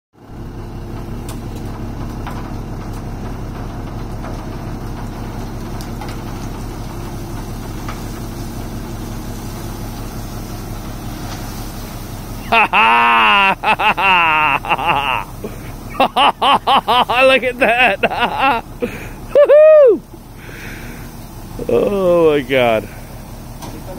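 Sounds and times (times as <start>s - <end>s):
truck engine running: 0.2s - 23.9s
wood chips sliding: 4.0s - 19.3s, 20.0s - 23.9s.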